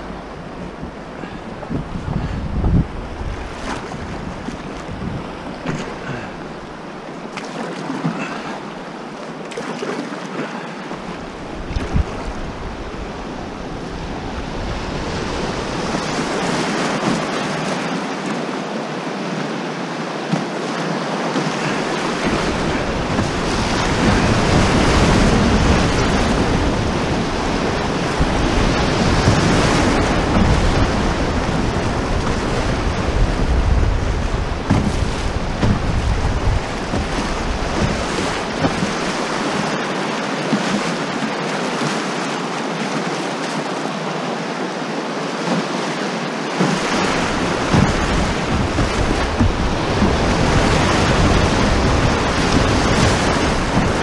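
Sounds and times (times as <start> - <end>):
wind rumble on microphone: 0.0 - 6.8, 10.9 - 17.8, 21.6 - 39.8, 46.6 - 54.0
river rapids rushing and splashing: 0.0 - 54.0.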